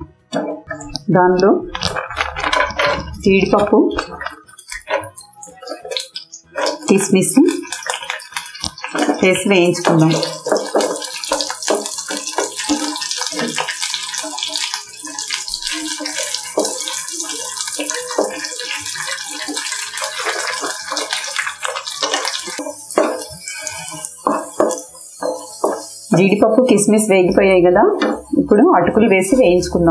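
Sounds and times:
spatula stirring in pan: 1.7s - 27.1s
nuts sizzling and crackling in oil: 1.7s - 29.9s.

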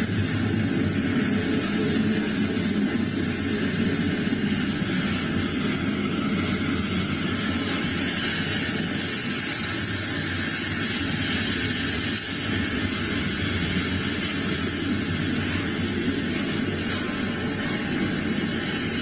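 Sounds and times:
freight train wheels rumbling: 0.0s - 19.0s.

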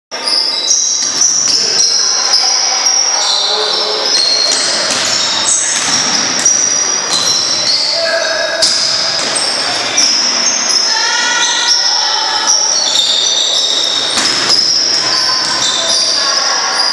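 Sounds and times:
players' voices: 0.2s - 16.9s
sneaker squeaks on floor: 0.2s - 16.9s
basketball bouncing: 4.1s - 7.9s, 8.6s - 10.8s, 13.6s - 16.0s.

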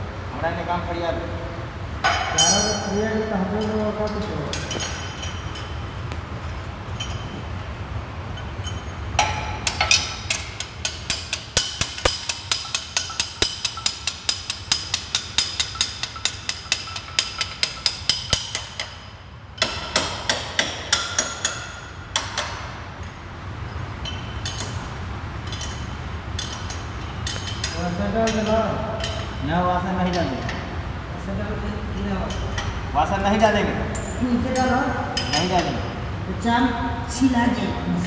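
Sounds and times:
low machine hum: 0.0s - 38.0s
rapid metallic knocks: 9.2s - 19.0s.

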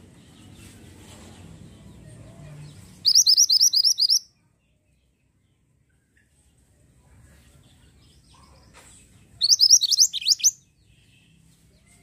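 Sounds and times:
bird trilling whistled notes: 3.0s - 4.2s, 9.4s - 10.6s.

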